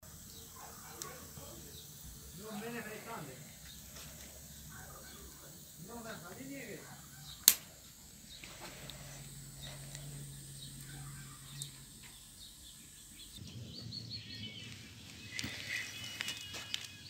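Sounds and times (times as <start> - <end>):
low steady hum: 0.0 - 15.6
faint small-bird chirps: 7.0 - 17.0.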